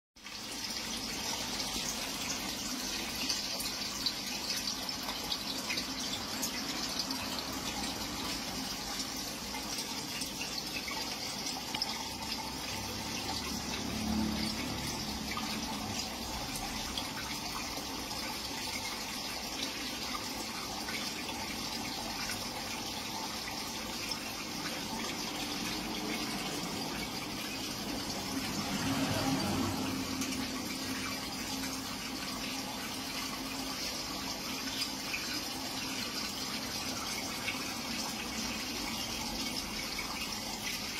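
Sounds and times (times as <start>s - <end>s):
aquarium water bubbling: 0.2s - 40.9s.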